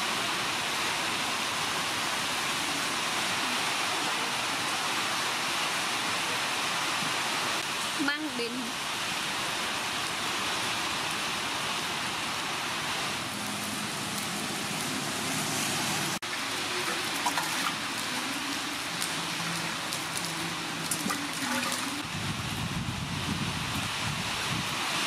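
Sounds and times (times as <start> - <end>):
water splashing and sloshing: 12.1 - 22.6.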